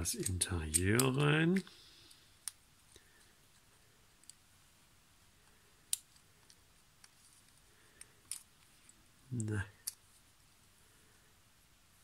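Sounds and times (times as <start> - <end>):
faint plastic clicks: 0.1 - 4.4.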